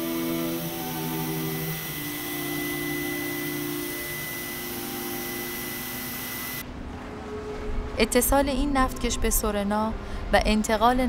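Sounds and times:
engine-room machinery roar: 0.0 - 8.0
steady high whine: 0.0 - 11.0.

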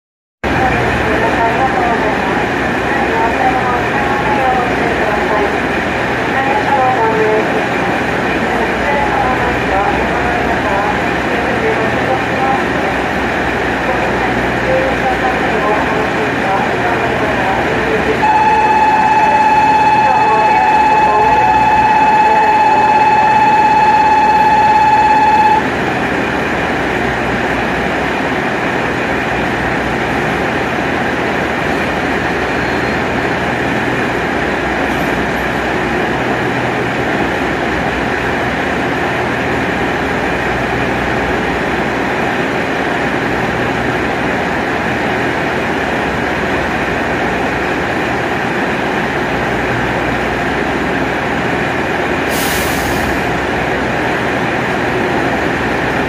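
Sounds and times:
railcar engine idling: 0.4 - 56.0
faint whine: 18.2 - 25.7
hiss of air: 52.3 - 53.2.

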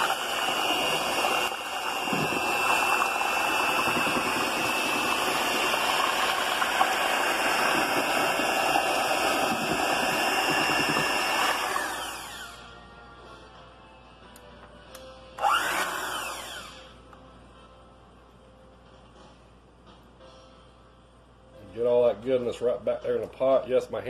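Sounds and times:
mixer motor spinning down: 0.0 - 12.7, 15.4 - 16.9
electric hand mixer whining: 0.0 - 12.8, 15.4 - 16.9.

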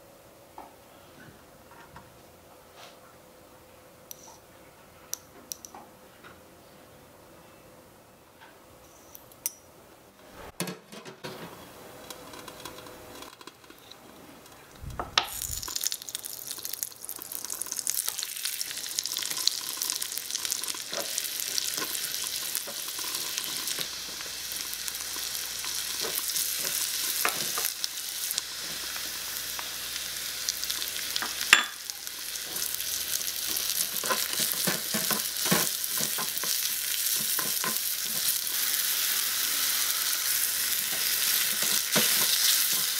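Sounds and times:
mushrooms frying: 14.8 - 42.9
food sizzling in wok: 15.2 - 42.9
spoon clinking in bowl: 31.5 - 31.8.

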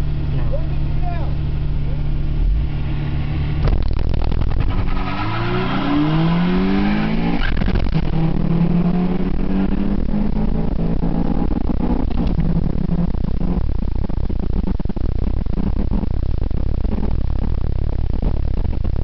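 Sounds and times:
car engine pulling: 0.0 - 13.7
road rumble: 0.0 - 19.0.

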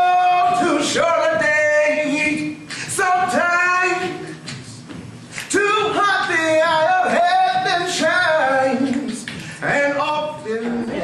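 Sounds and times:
men singing a cappella: 5.5 - 11.0.

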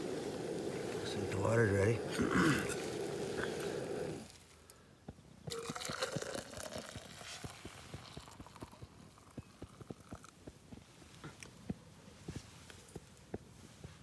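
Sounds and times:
stove burner hissing: 0.0 - 4.7
water pouring into tumbler: 5.5 - 10.3.

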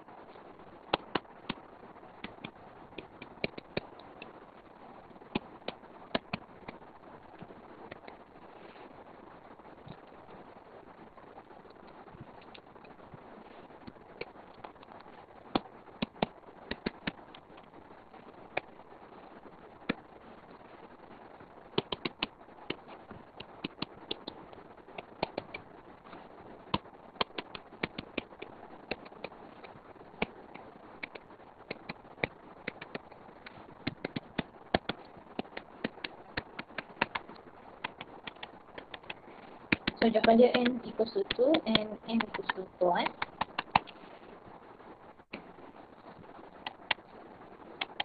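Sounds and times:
faint steady hiss: 0.0 - 48.0.

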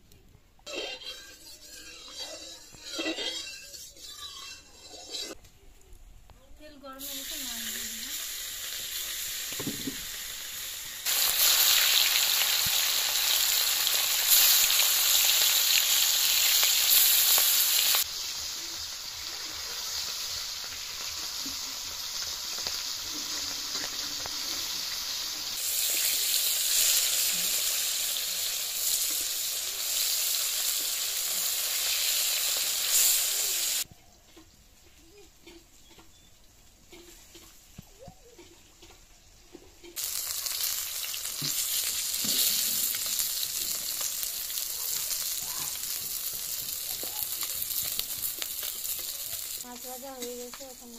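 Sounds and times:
steel spatula turning fish: 0.7 - 5.4
fish sizzling in hot oil: 7.0 - 33.9, 40.0 - 50.9.

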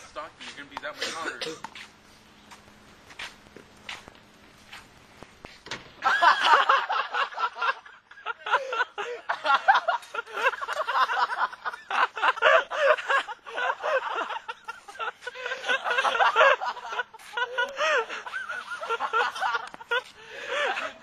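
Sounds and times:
people snickering and giggling: 6.0 - 21.0.

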